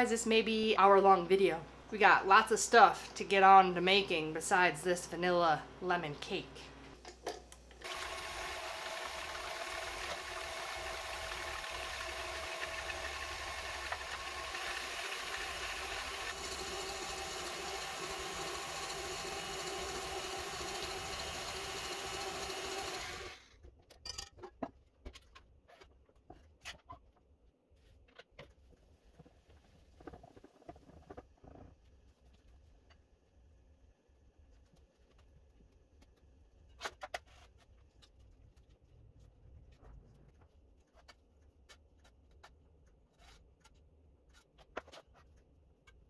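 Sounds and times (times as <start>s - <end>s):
stand mixer whipping: 7.8s - 23.4s.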